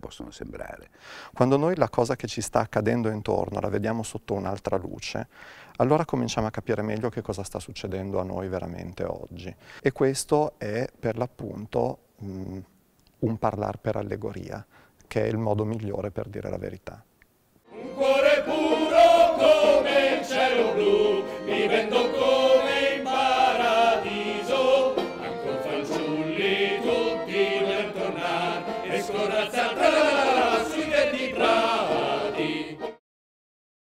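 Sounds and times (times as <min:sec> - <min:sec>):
men singing in chorus: 0:17.7 - 0:32.9.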